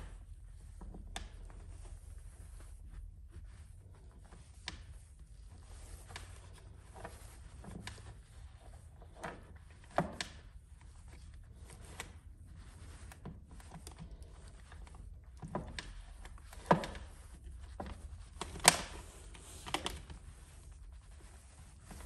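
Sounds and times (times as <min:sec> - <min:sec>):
wires and plastic parts clicking: 0:00.8 - 0:01.9, 0:04.2 - 0:20.6.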